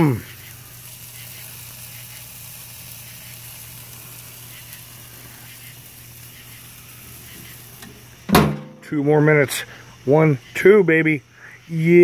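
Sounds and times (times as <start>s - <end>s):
steak sizzling on a grill: 0.0s - 12.0s
steady low hum: 3.7s - 10.6s.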